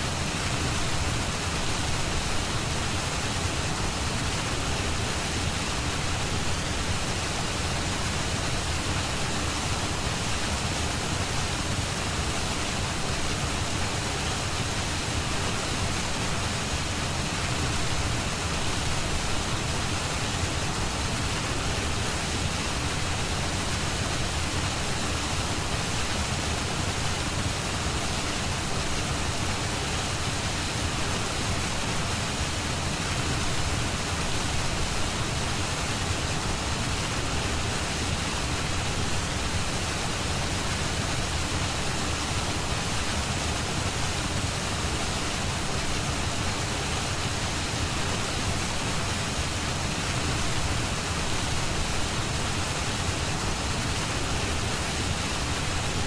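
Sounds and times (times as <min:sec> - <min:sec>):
steady rushing hiss: 0:00.0 - 0:56.0.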